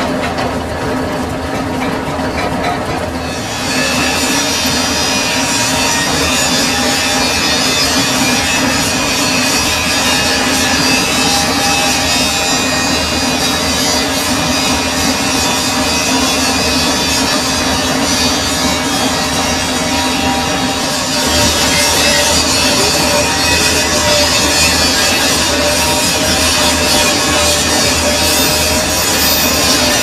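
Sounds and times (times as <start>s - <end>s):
metal lathe humming: 3.1s - 30.0s
rasping metal cutting: 3.2s - 30.0s.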